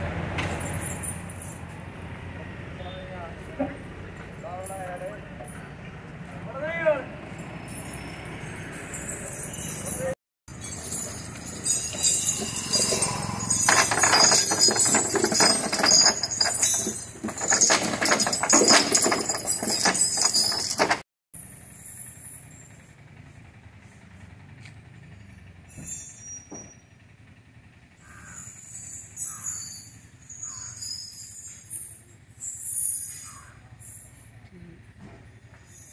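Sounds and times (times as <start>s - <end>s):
iron chain rattling and clanking: 7.2s - 21.1s.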